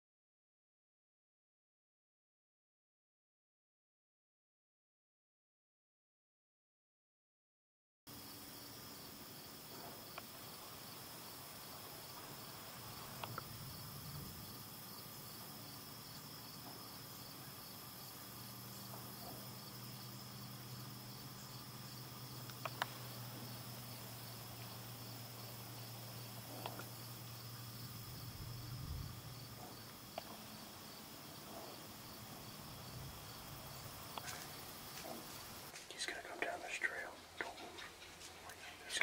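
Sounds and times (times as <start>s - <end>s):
crickets chirping: 8.1s - 39.0s
sharp clicks: 13.2s - 13.5s, 22.4s - 23.0s.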